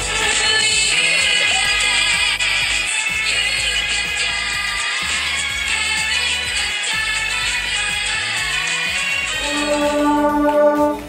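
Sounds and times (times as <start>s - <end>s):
song with busy backing: 0.0s - 11.0s
long held note: 9.4s - 11.0s.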